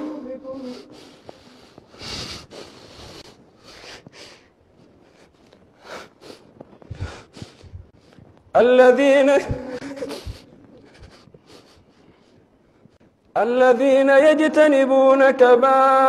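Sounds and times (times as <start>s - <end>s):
sniffs and sobbing breaths: 9.8s - 12.5s.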